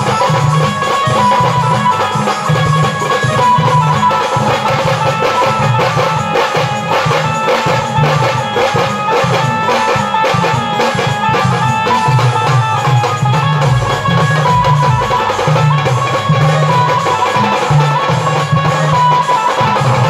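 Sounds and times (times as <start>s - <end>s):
drums beaten with sticks: 0.0s - 20.0s
melody line: 11.4s - 18.8s.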